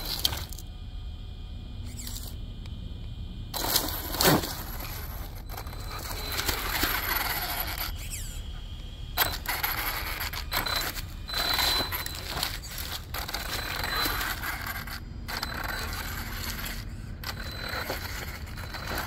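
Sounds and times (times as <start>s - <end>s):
electric motor whining: 3.5s - 19.0s
tyres crunching through leaves: 3.6s - 8.1s, 9.2s - 19.0s.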